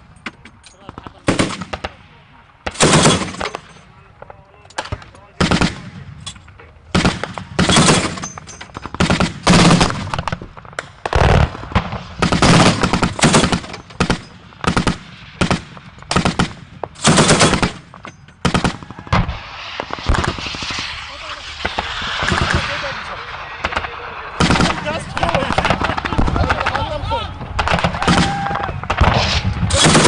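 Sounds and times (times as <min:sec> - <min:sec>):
machine-gun bursts: 0:07.0 - 0:08.2, 0:16.2 - 0:17.8, 0:29.7 - 0:30.0.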